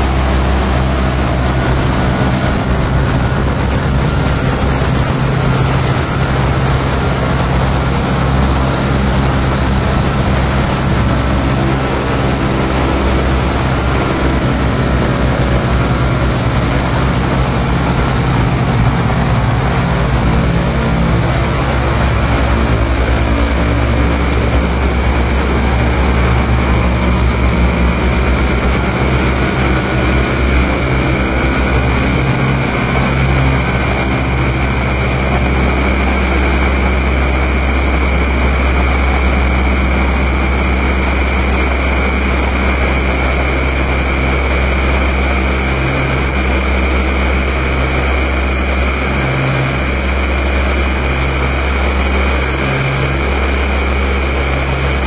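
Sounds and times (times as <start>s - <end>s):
deep low rumble: 0.0s - 55.0s
noise music hiss and drone: 0.0s - 55.0s
pulsing low tone: 0.0s - 55.0s.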